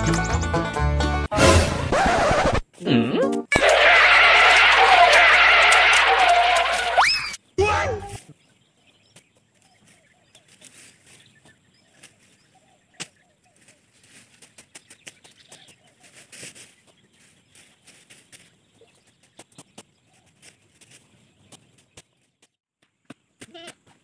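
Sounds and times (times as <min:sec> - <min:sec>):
rustle of cut stems: 0:09.8 - 0:12.4, 0:13.0 - 0:14.5, 0:16.0 - 0:18.5.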